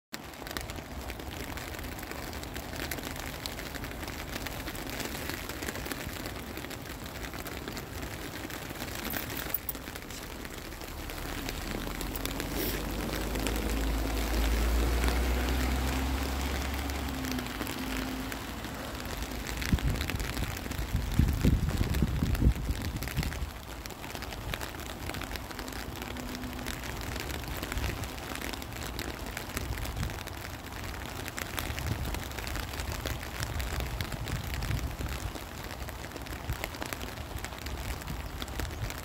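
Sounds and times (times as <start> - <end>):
rain pattering: 0.1 - 39.0.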